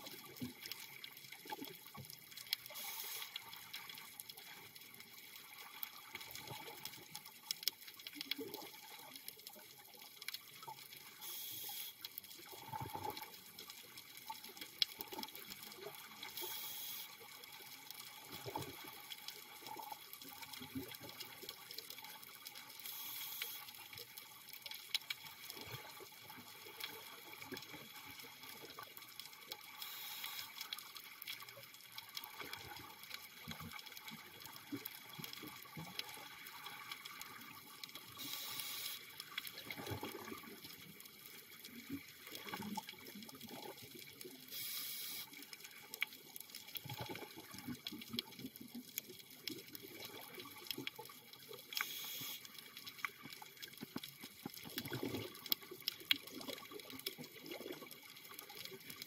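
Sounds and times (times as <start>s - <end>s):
regulator breathing hiss: 2.7s - 3.4s, 11.2s - 12.0s, 16.4s - 17.1s, 22.8s - 23.7s, 29.8s - 30.6s, 38.2s - 39.0s, 44.5s - 45.3s, 51.8s - 52.4s
bubbles gurgling: 12.5s - 13.4s, 39.5s - 40.9s, 41.6s - 44.2s, 46.8s - 48.9s, 53.1s - 59.0s.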